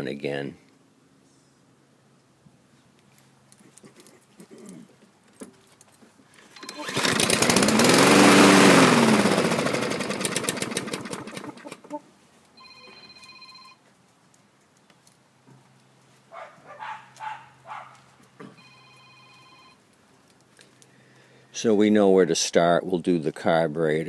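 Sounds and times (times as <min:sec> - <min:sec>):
electronic ringing tone: 0:06.6 - 0:07.0, 0:12.6 - 0:13.8, 0:18.6 - 0:19.8
lawn mower engine sputtering: 0:06.6 - 0:12.0.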